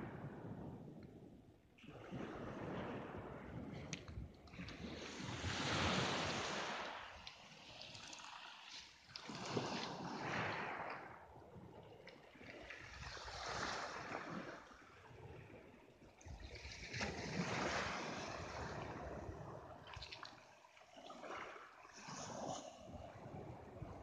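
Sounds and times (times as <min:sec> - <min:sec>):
wind rumble on microphone: 0:00.0 - 0:07.7, 0:09.3 - 0:20.2, 0:22.0 - 0:24.0
waves washing onto pebbles: 0:02.2 - 0:11.3, 0:12.6 - 0:15.0.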